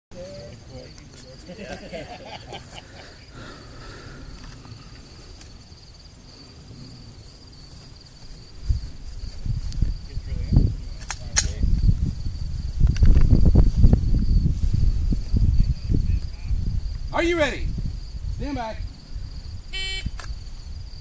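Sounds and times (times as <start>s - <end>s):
insects droning: 0.1s - 21.0s
sharp crack: 11.0s - 11.7s.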